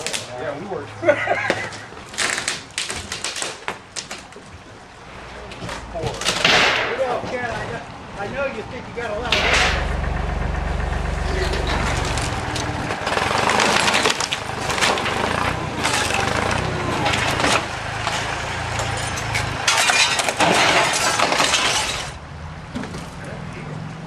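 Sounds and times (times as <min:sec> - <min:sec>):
wood cracking and splintering: 0:02.0 - 0:04.6, 0:05.7 - 0:07.1, 0:11.3 - 0:23.2
low engine hum: 0:08.8 - 0:19.7
wall collapsing: 0:09.2 - 0:22.2.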